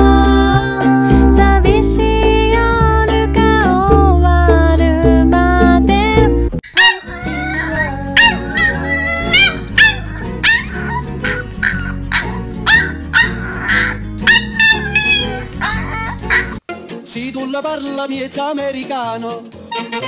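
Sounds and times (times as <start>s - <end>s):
background music: 0.0s - 20.0s
puppy yapping: 6.6s - 16.6s.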